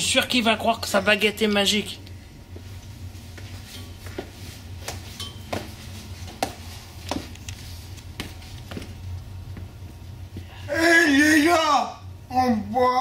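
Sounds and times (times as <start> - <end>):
low steady hum: 0.0 - 13.0
boot footsteps on hard floor: 3.3 - 7.4, 8.1 - 9.9.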